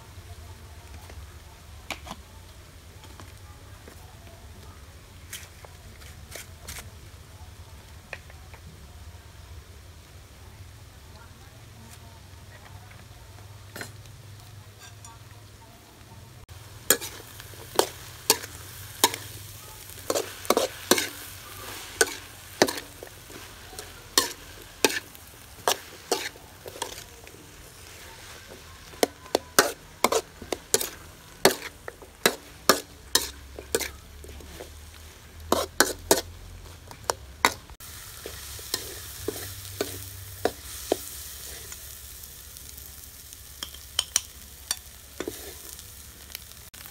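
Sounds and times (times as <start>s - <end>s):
frying sizzle: 0.0s - 46.9s
metal spatula scraping wok: 13.7s - 14.1s, 14.7s - 15.3s, 16.7s - 42.0s, 43.5s - 46.0s.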